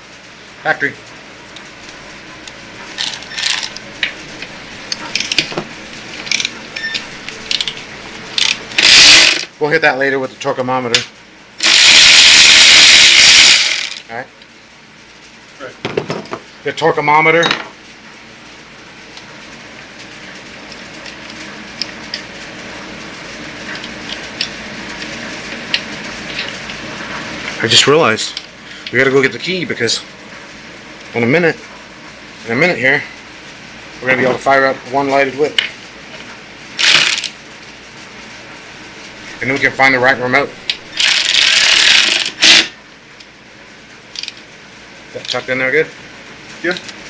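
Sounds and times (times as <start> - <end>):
electric ratchet spinning a bolt: 3.0 - 3.9, 5.1 - 5.5, 6.2 - 6.6, 7.5 - 7.8, 8.4 - 9.5, 11.6 - 14.1, 36.8 - 37.4, 40.9 - 42.7, 44.1 - 44.4.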